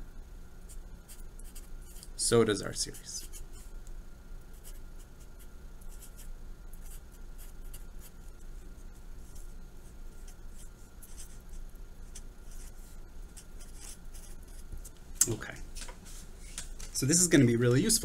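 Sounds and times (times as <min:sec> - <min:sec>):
faint steady hum: 0:00.0 - 0:18.0
marker pen scratching on paper: 0:00.7 - 0:02.1, 0:02.9 - 0:03.8, 0:04.5 - 0:15.0.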